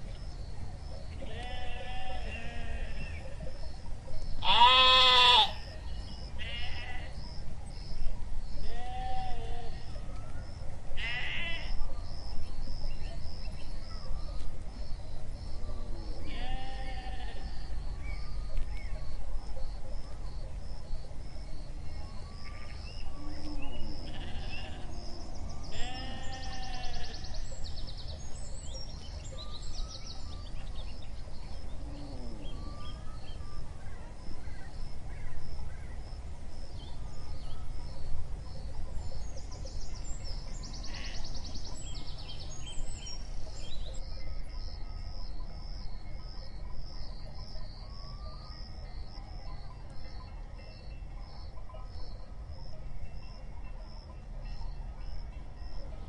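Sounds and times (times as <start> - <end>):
birds singing: 0.0 - 52.5
sheep bleating: 1.3 - 3.0, 4.4 - 5.6, 16.3 - 17.4, 24.1 - 24.8, 25.7 - 27.2.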